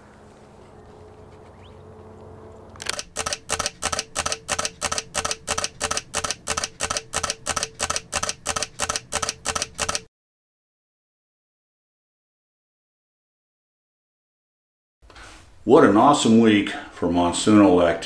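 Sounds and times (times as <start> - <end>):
camera shutter clicking: 2.8 - 10.1.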